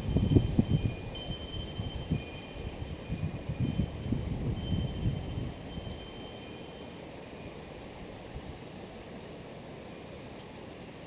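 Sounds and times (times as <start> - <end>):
wind buffeting microphone: 0.0 - 6.4
wind chimes ringing: 0.0 - 7.7, 9.0 - 11.0.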